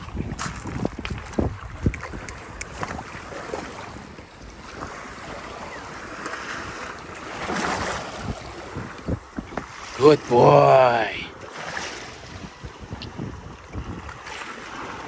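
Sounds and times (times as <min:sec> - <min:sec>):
wind buffeting microphone: 0:00.0 - 0:10.3, 0:11.6 - 0:15.0
waves lapping on pebbly shore: 0:02.4 - 0:12.6, 0:14.0 - 0:15.0.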